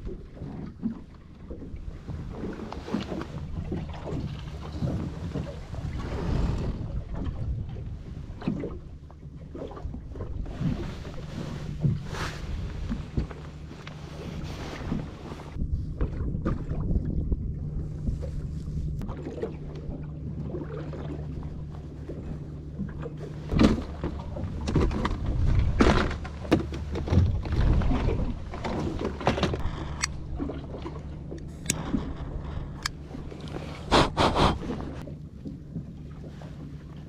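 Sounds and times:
outboard motor idling: 0.0s - 37.0s
knocks and clatter on board: 23.5s - 29.6s.

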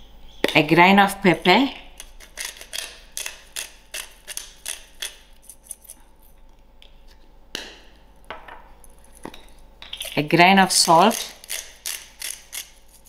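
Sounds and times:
pepper grinder rasping clicks: 2.0s - 6.0s, 10.8s - 13.0s.

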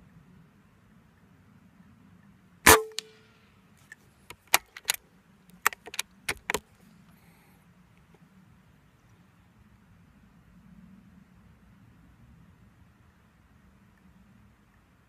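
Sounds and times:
air rifle shot: 2.7s - 3.1s
rifle bolt clicking: 4.3s - 5.0s.

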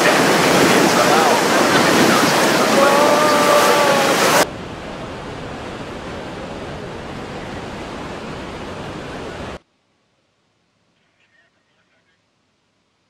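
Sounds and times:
waterfall rushing: 0.0s - 9.6s.

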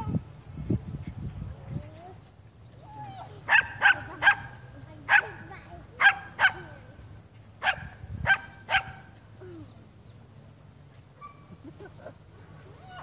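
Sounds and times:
small dog barking: 3.5s - 4.5s, 5.1s - 5.4s, 6.0s - 6.7s, 7.6s - 9.1s, 11.2s - 11.5s.

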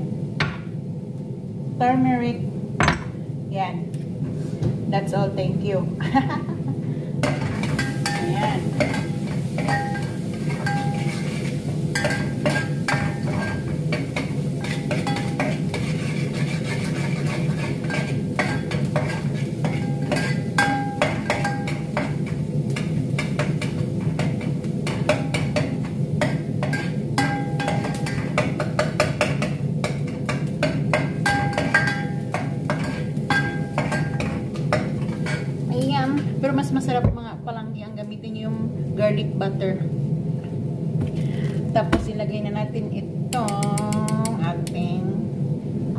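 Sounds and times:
metal spoon scraping a pot: 7.6s - 13.7s, 14.6s - 21.8s, 31.2s - 35.5s.

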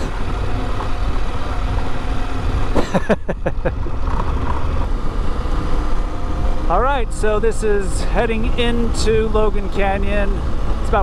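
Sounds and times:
wind rumble on microphone: 0.0s - 2.8s
motorcycle engine running: 0.0s - 11.0s.

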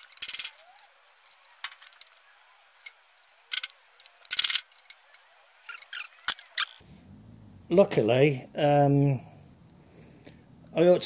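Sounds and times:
metal tools clinking and rattling: 0.0s - 6.8s.

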